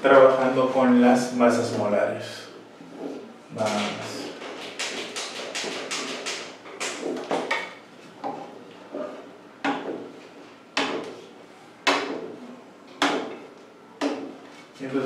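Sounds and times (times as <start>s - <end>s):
marker scratching on whiteboard: 2.8s - 7.6s, 11.9s - 12.4s.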